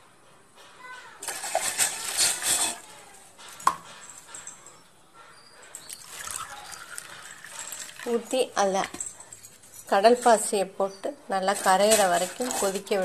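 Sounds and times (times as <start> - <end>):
liquid pouring into a pan: 5.9 - 8.2.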